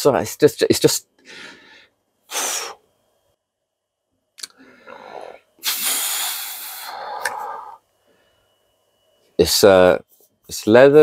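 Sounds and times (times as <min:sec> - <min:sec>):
man breathing: 0:01.2 - 0:02.9, 0:04.4 - 0:08.6.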